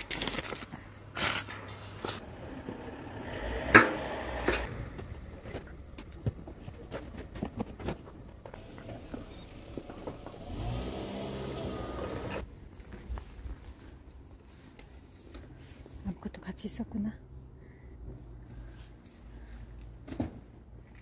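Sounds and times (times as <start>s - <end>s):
vehicle engine running: 2.2s - 12.5s.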